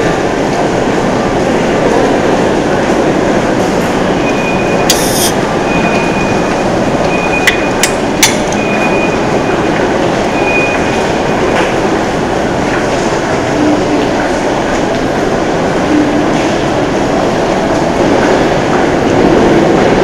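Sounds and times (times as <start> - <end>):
thin high squeal: 4.9 - 5.4.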